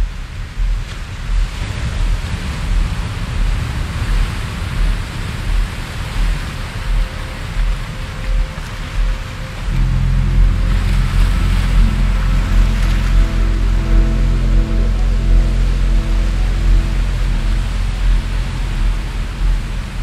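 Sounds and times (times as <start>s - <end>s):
hiss-like noise wash: 0.0s - 20.0s
deep low rumble: 0.5s - 20.0s.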